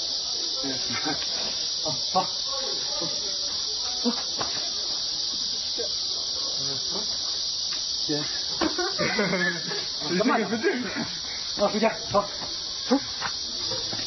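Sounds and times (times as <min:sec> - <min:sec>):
faint voices: 0:00.0 - 0:07.4
insect chorus: 0:00.0 - 0:14.0.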